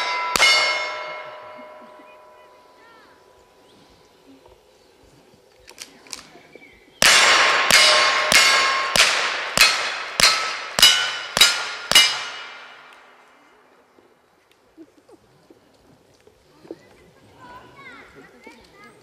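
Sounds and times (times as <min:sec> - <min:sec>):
metallic ringing of steel targets: 0:00.0 - 0:03.0, 0:07.0 - 0:13.4.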